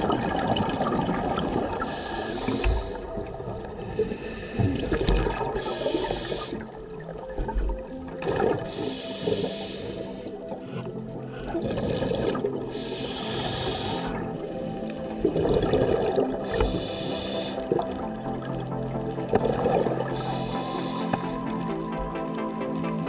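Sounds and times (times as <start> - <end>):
underwater regulator bubbles gurgling: 0.0 - 23.0.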